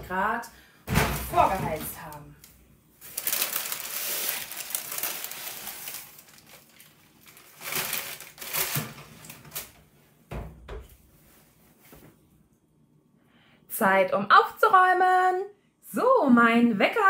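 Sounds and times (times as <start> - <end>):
baking paper crinkling: 1.2 - 9.8.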